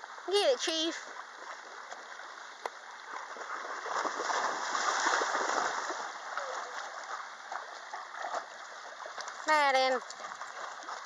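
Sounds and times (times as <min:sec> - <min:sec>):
dogs splashing in water: 0:03.0 - 0:11.0.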